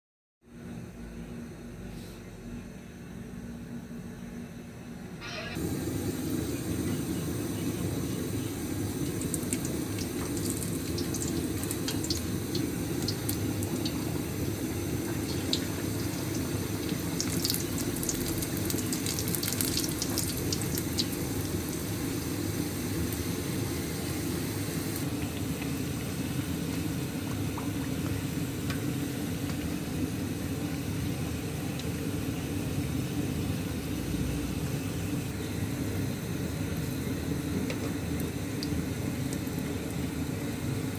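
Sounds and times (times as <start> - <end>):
food deep-frying in oil: 5.2 - 40.9
oil crackling and popping: 9.0 - 21.6.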